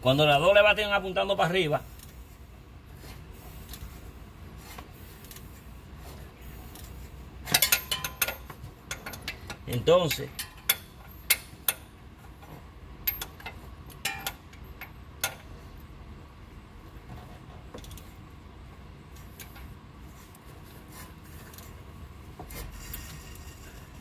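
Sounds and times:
hand tools clinking on metal: 7.4 - 11.9, 13.0 - 15.5.

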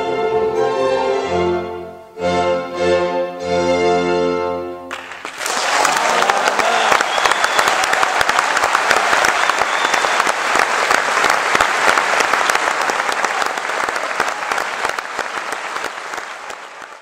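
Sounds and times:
audience applauding: 4.9 - 17.0.

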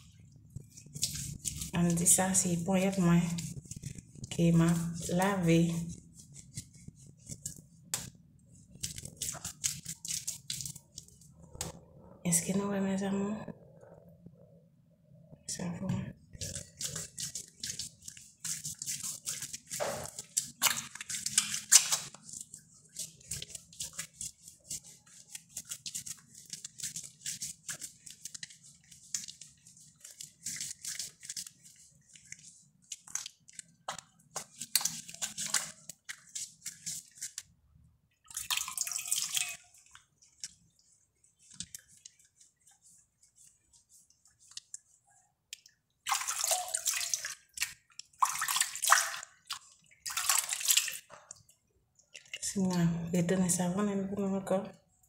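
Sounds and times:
hands lathering soap squishing: 0.0 - 12.6, 16.3 - 53.7
hands splashing in water: 16.6 - 37.4, 38.2 - 39.8, 46.0 - 51.4.

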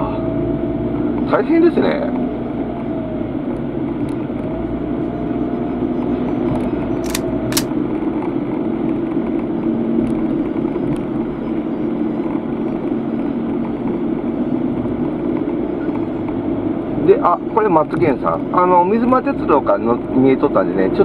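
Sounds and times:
car engine and road noise: 0.0 - 21.0
sharp clicks: 6.6 - 7.8.

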